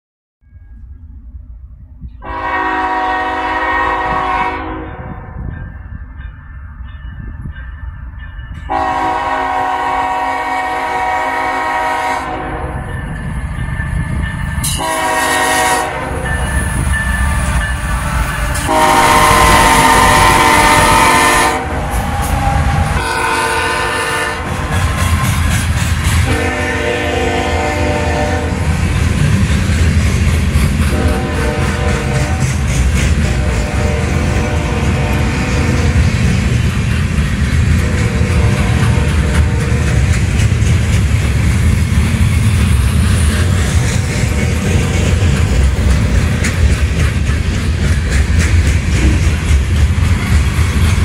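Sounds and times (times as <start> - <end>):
locomotive engines rumbling: 0.8 - 51.0
train wheels on rails: 2.0 - 51.0
train horn blasts: 2.2 - 5.4, 8.7 - 12.9, 14.6 - 25.3, 26.2 - 28.8, 30.9 - 36.1, 37.8 - 40.1.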